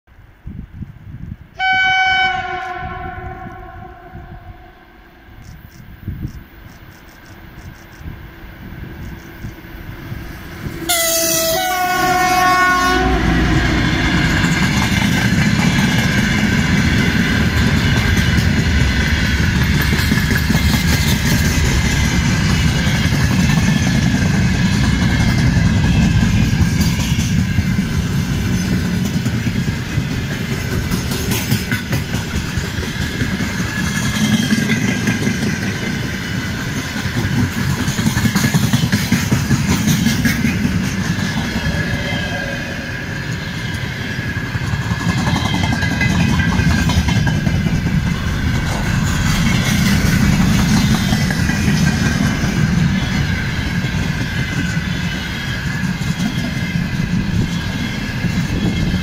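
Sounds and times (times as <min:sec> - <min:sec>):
locomotive horn: 0:01.6 - 0:05.1, 0:10.8 - 0:14.5
freight wagons rumbling: 0:12.9 - 0:59.0
wheels clattering over rail joints: 0:13.5 - 0:42.0, 0:43.4 - 0:59.0.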